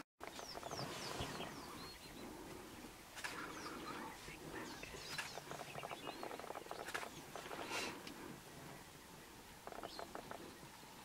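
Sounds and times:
high chirping calls: 0:00.2 - 0:02.2, 0:03.3 - 0:07.9, 0:09.6 - 0:10.7.

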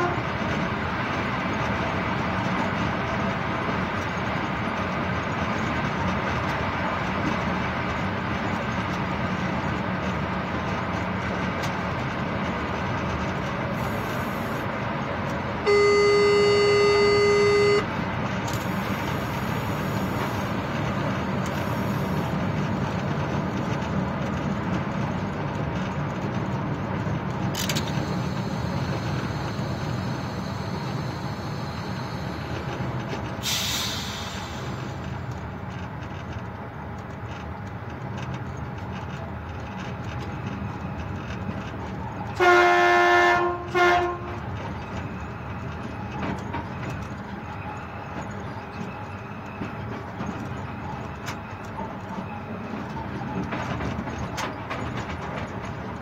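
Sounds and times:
locomotive horn blast: 0:00.0 - 0:00.4, 0:15.6 - 0:18.0, 0:42.3 - 0:44.5
locomotive rumble and rail noise: 0:00.0 - 0:56.0.

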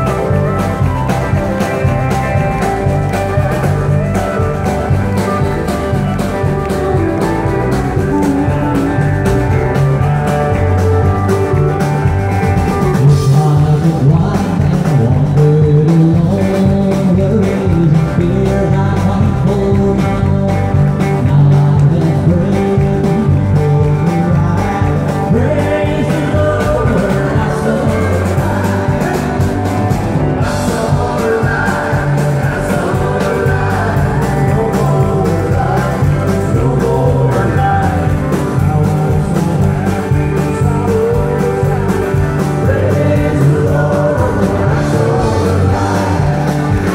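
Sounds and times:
live country band playing: 0:00.0 - 0:46.9
people singing: 0:21.2 - 0:46.9.

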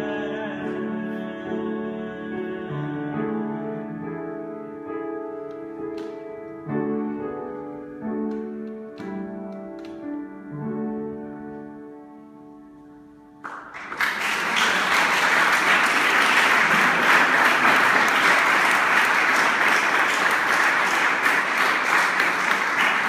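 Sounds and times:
audience applause: 0:13.4 - 0:23.0.

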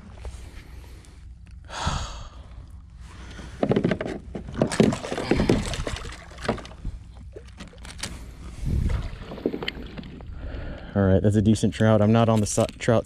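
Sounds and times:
knocks and rattles on kayak: 0:03.5 - 0:08.0, 0:08.8 - 0:10.2.

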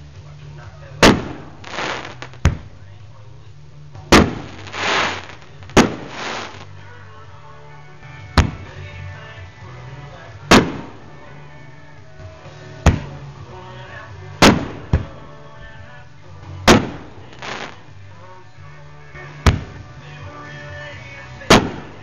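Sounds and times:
hissing crackle of fireworks: 0:00.0 - 0:02.9, 0:04.0 - 0:06.8, 0:10.4 - 0:11.2, 0:14.4 - 0:15.1, 0:16.7 - 0:17.9, 0:21.5 - 0:22.0
fireworks bursting with bangs: 0:00.9 - 0:02.9, 0:04.0 - 0:06.8, 0:08.4 - 0:08.8, 0:10.4 - 0:11.2, 0:12.7 - 0:13.4, 0:14.3 - 0:15.2, 0:16.6 - 0:17.9, 0:19.4 - 0:19.9, 0:21.4 - 0:22.0.

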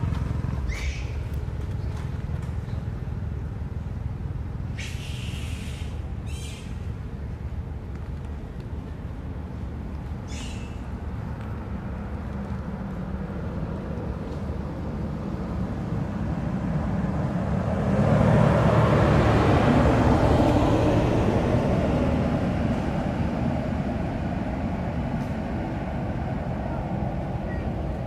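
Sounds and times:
pickup truck driving past: 0:13.2 - 0:28.0.

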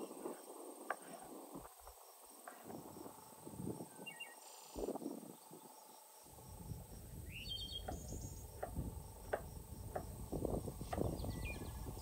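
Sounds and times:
insects buzzing: 0:00.0 - 0:12.0
bird chirping: 0:03.0 - 0:12.0.

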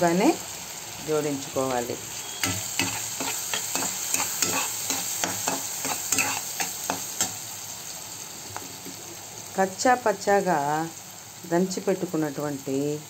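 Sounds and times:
onions sizzling in a pan: 0:00.0 - 0:13.0
spatula scraping a pan: 0:01.7 - 0:07.4.

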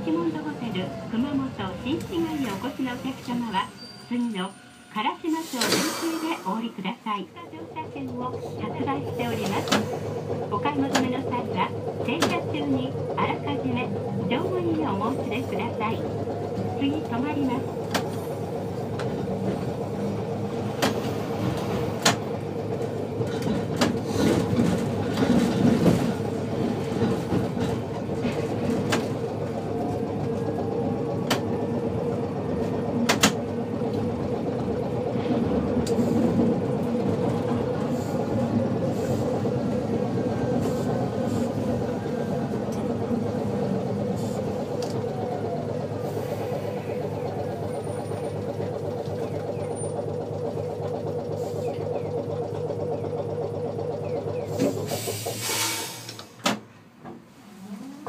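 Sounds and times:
tram hum and rumble: 0:00.0 - 0:58.0
wheels clacking over rail joints: 0:07.9 - 0:55.4.

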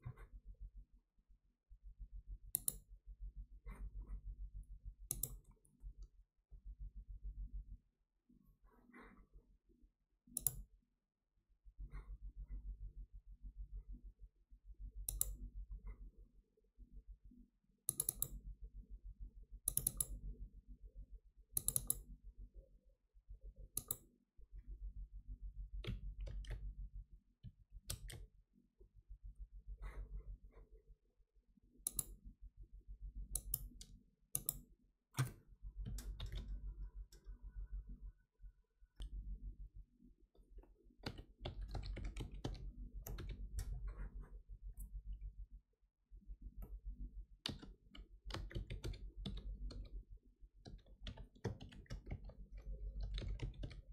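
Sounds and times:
computer mouse clicking: 0:02.5 - 0:02.9, 0:05.1 - 0:05.6, 0:10.3 - 0:10.7, 0:15.0 - 0:15.4, 0:17.9 - 0:18.4, 0:19.7 - 0:20.2, 0:21.6 - 0:22.1, 0:23.7 - 0:24.0, 0:27.4 - 0:28.2, 0:31.8 - 0:32.2, 0:33.3 - 0:37.4, 0:40.6 - 0:44.2, 0:47.4 - 0:50.0, 0:50.6 - 0:53.9
faint low hum: 0:11.6 - 0:53.9.

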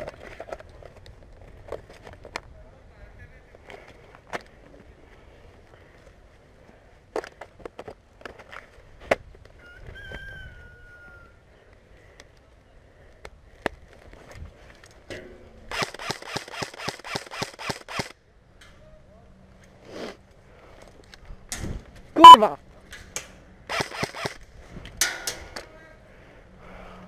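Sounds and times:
airsoft rifles firing: 0:23.7 - 0:24.4.

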